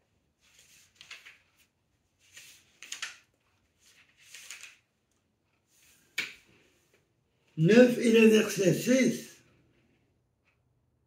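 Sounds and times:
paper pages rustling: 0.3 - 7.0.

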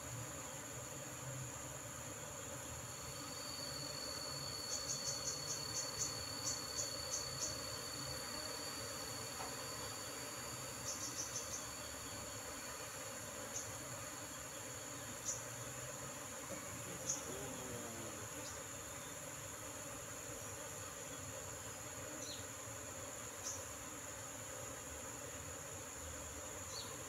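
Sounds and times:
insect high-pitched trill: 2.8 - 19.3, 23.2 - 24.2
insect sharp high chirps: 3.0 - 12.5, 13.4 - 15.7, 16.8 - 19.2, 23.3 - 23.7.

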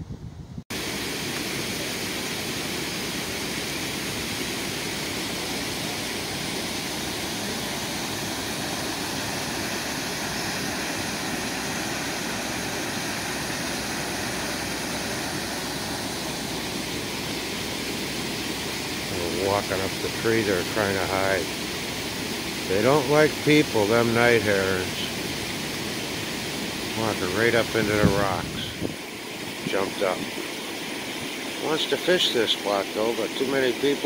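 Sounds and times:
water rushing over waterfall: 0.8 - 34.0.

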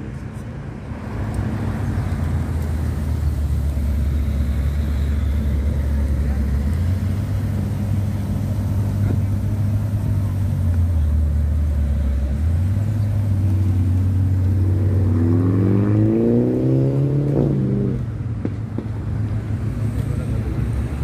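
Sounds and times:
car engine revving: 1.3 - 18.1.

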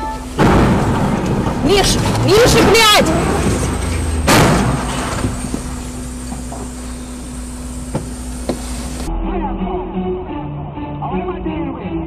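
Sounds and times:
vehicle collision crash: 0.0 - 9.0
traffic and engine hum: 0.0 - 9.1.

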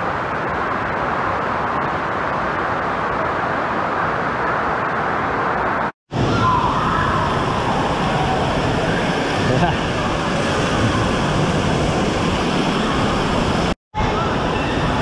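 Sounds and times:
echoing indoor pool hubbub: 0.2 - 15.0
water rushing down slide: 6.2 - 13.8.

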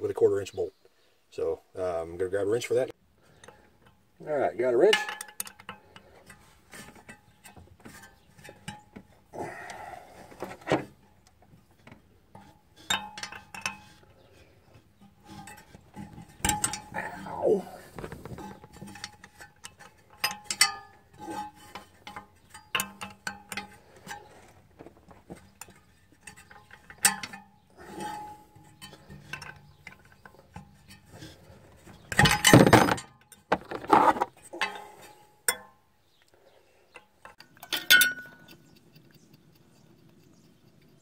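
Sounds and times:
metallic scraping clatter: 12.3 - 35.7.

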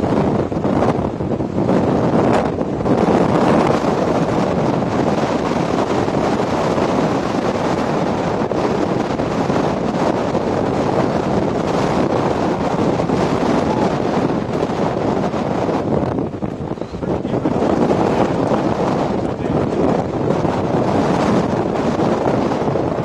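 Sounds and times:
wind on microphone: 0.0 - 23.0.

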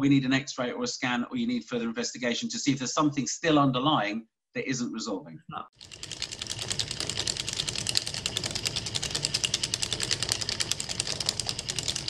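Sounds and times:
rapid clicks: 5.8 - 12.0.

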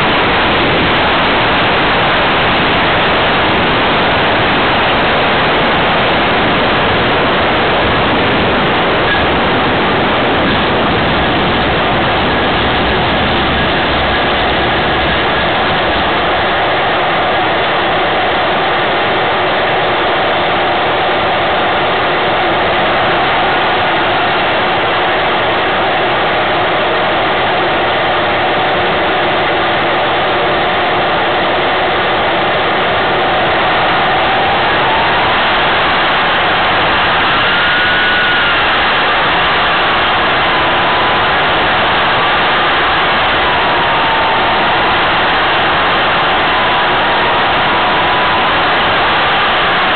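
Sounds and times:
steady rushing noise: 0.0 - 49.9
model aircraft motor and airflow: 6.6 - 16.4, 33.3 - 45.8.

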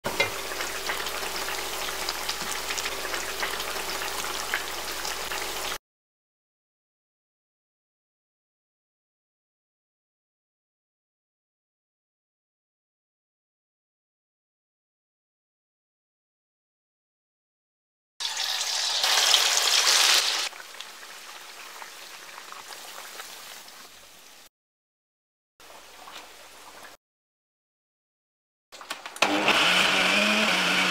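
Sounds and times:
sauce sizzling and popping in pot: 0.1 - 5.8, 18.2 - 24.5.

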